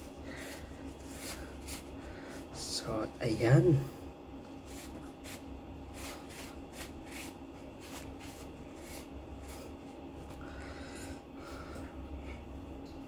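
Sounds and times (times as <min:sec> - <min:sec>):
hands rubbing wet hair: 0:00.0 - 0:02.0, 0:04.6 - 0:10.4
paper tissue rustling: 0:00.0 - 0:02.4, 0:04.6 - 0:10.0
low room hum: 0:00.0 - 0:13.0.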